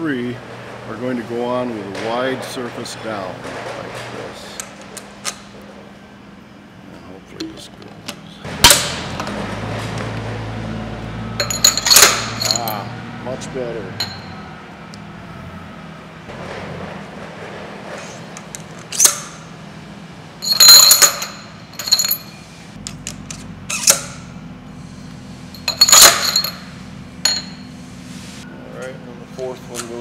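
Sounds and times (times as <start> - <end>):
low shop hum: 0.0 - 30.0
metal bearings clinking on spindle: 11.4 - 12.9, 20.4 - 22.5, 25.5 - 27.8.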